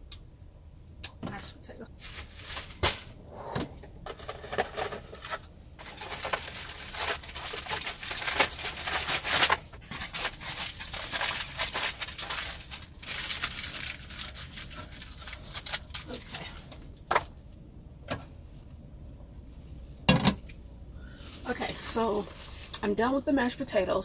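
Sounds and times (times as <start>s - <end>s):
plastic bag crinkling: 2.0s - 3.2s, 4.2s - 16.8s.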